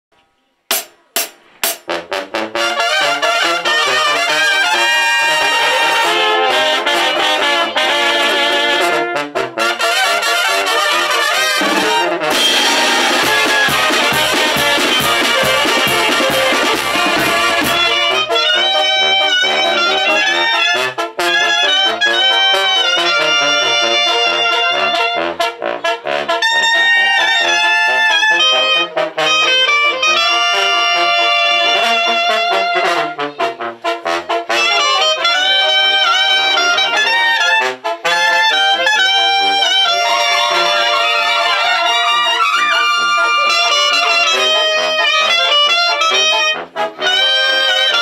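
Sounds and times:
drum kit and cymbals: 0:00.7 - 0:02.0, 0:11.6 - 0:18.2
brass and clarinets melody: 0:01.6 - 0:48.0.

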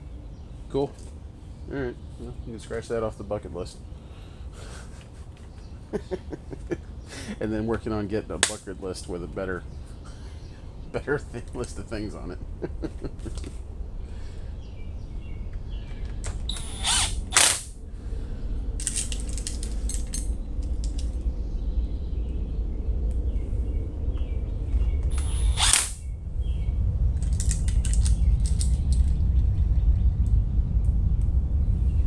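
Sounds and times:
steady low rumble: 0:00.0 - 0:32.0
cordless drill driving screws: 0:16.5 - 0:17.6, 0:25.1 - 0:26.0
small metal parts clicking: 0:18.8 - 0:21.2, 0:27.2 - 0:29.2.

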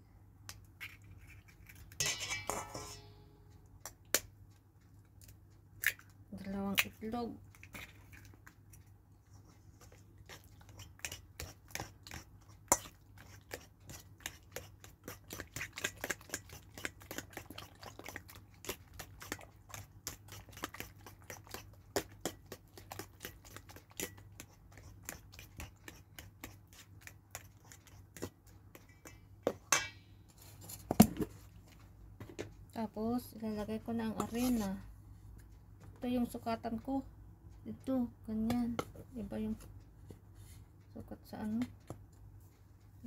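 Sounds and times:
fork beating in metal bowl: 0:02.0 - 0:03.2, 0:10.3 - 0:30.0.

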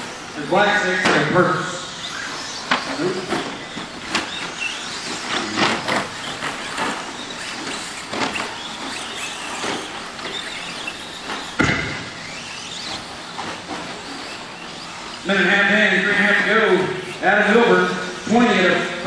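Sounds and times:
toy trucks motors and tyres hissing: 0:01.9 - 0:11.6, 0:12.2 - 0:15.2
knocks and clatters: 0:02.5 - 0:14.4
loud thump: 0:11.6 - 0:12.2.

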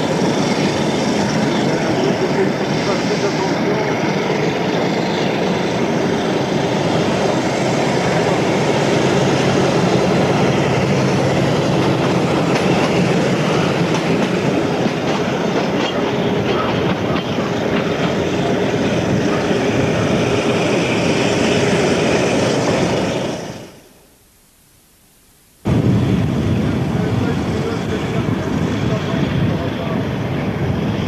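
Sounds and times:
train wagons clattering on rails: 0:00.0 - 0:21.1.

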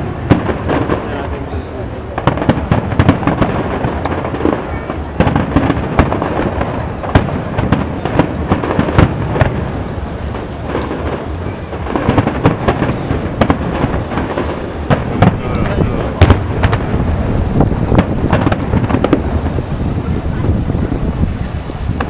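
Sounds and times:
fireworks bangs: 0:00.0 - 0:22.0
low din of explosions: 0:00.0 - 0:22.0.

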